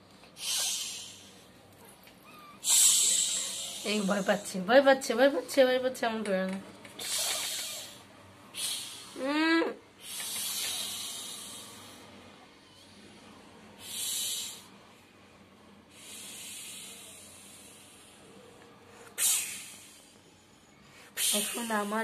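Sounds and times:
kittens hissing: 0.3s - 4.6s, 6.9s - 9.4s, 10.0s - 14.8s, 19.0s - 20.5s, 21.1s - 22.0s.

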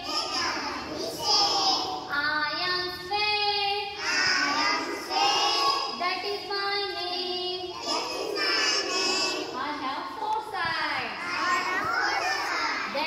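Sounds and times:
children singing together: 0.0s - 2.6s, 3.7s - 6.0s, 7.0s - 9.6s, 11.2s - 13.0s.

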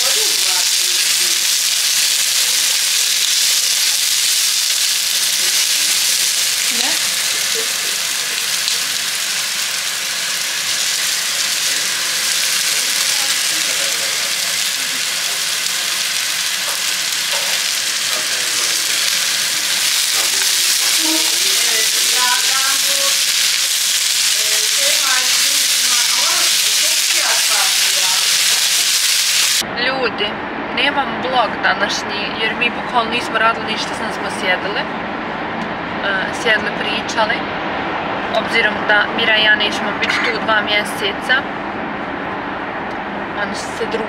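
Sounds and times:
vegetables sizzling in a pan: 0.0s - 29.6s.

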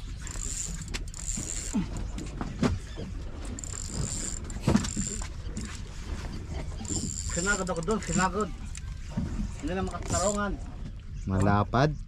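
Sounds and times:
fishing reel clicking and whirring: 0.0s - 2.2s, 3.3s - 5.8s, 6.8s - 9.0s, 9.6s - 10.5s.

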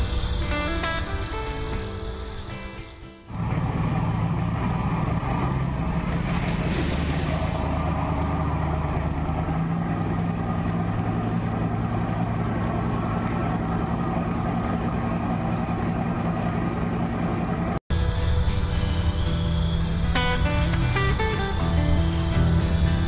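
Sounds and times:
motorboat engine running: 3.3s - 23.0s.

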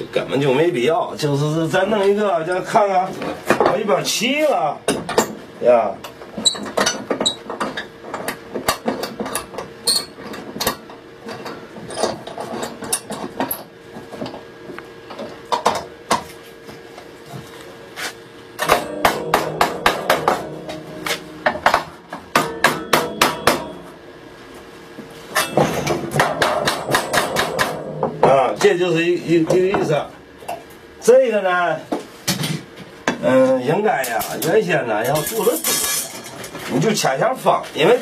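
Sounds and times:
hammer tapping wood and metal: 18.6s - 23.7s, 25.5s - 28.8s.

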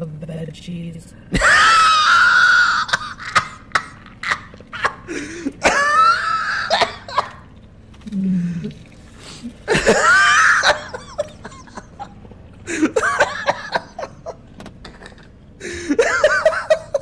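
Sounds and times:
man wheezing laughter: 1.4s - 7.3s, 9.7s - 17.0s
man gasping breaths: 5.1s - 5.6s.

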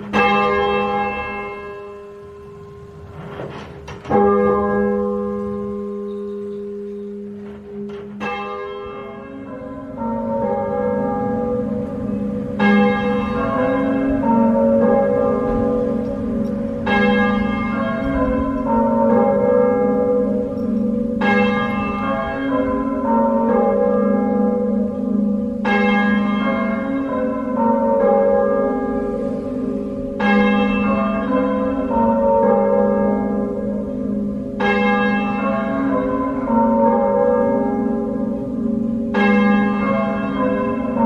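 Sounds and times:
muffled church bells clanging: 0.0s - 41.0s
clear bright bell ringing: 4.2s - 7.4s.

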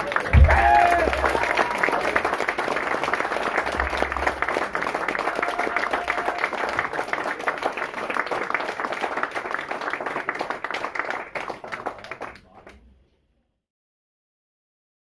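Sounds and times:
audience applauding: 0.0s - 12.8s.

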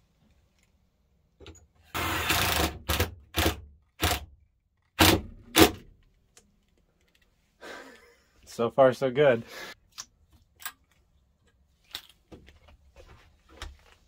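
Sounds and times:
power screwdriver driving screw: 1.9s - 4.2s.

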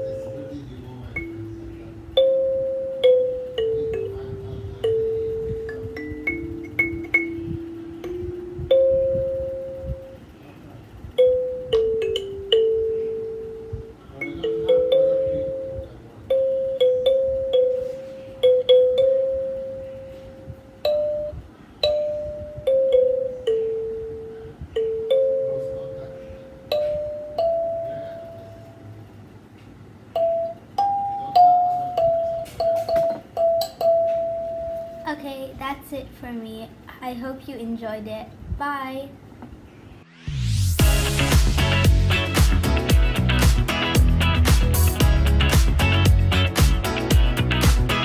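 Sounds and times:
kalimba melody: 1.2s - 10.2s, 11.2s - 28.8s, 30.1s - 35.1s.

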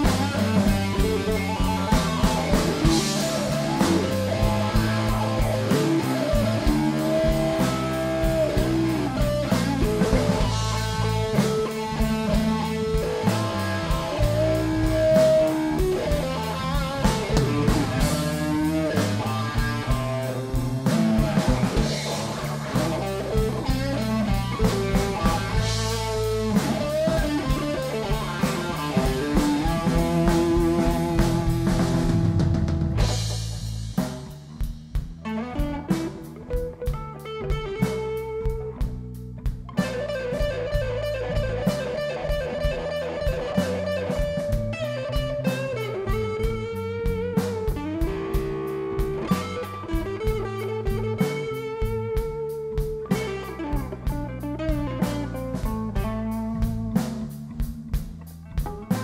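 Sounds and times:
electric guitar lead: 0.0s - 59.0s
live blues band playing: 0.0s - 59.0s.

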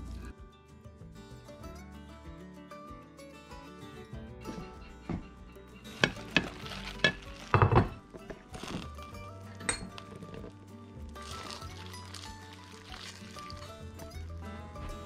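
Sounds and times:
background music: 0.0s - 15.0s
forks clinking on a plate: 5.8s - 8.3s, 9.6s - 10.5s.

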